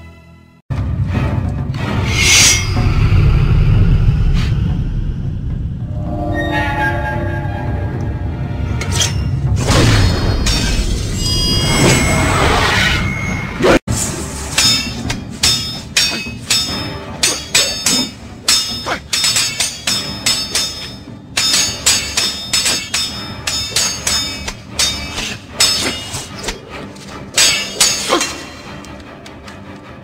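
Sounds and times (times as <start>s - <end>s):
background music: 0.0s - 30.0s
sharp metallic clangs: 14.2s - 26.6s, 27.2s - 28.7s.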